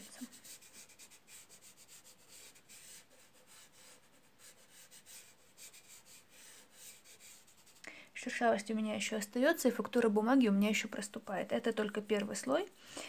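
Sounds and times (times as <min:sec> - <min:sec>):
fingertips rubbing pastel on paper: 0:00.0 - 0:07.8.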